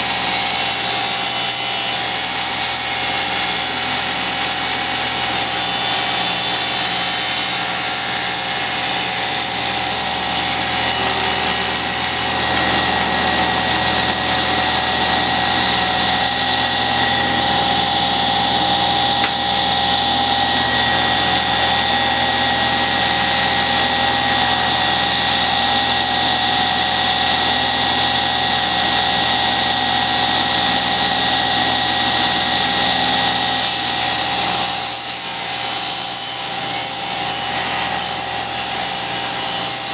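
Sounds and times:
saw ripping a board: 0.0s - 19.9s, 32.3s - 39.9s
table saw whining: 0.0s - 39.9s.

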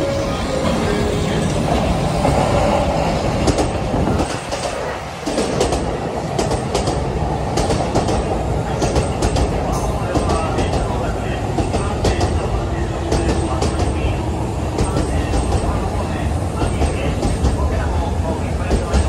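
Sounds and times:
electric train running: 0.0s - 19.0s.

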